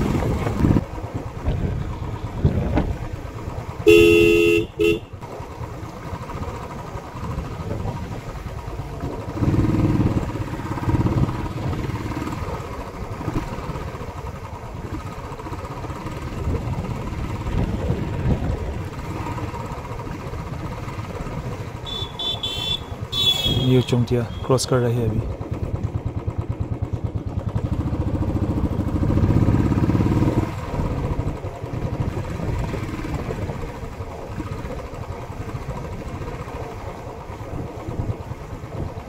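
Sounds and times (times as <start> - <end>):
motorcycle engine running: 0.0 - 39.0
road and wind noise: 0.0 - 39.0
horn tooting: 3.8 - 5.2, 21.8 - 24.8.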